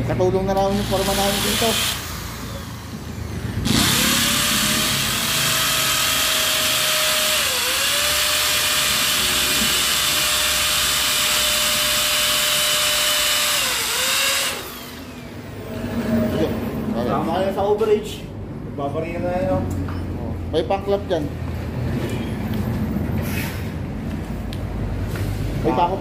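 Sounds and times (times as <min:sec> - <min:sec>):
hammer drill boring into concrete: 0:00.7 - 0:15.3.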